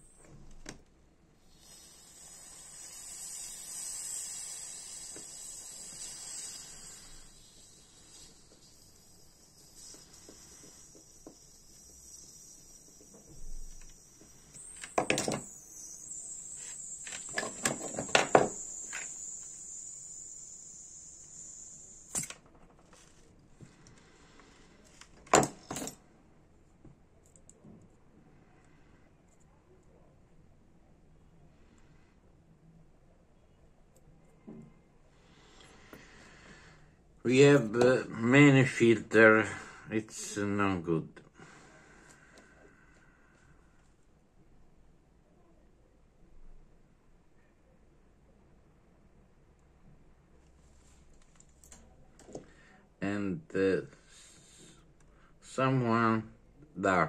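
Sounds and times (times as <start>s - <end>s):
gas hissing from lighter valve: 1.4s - 25.9s, 35.2s - 40.4s, 54.0s - 54.8s
metal objects set on workbench: 25.2s - 26.0s.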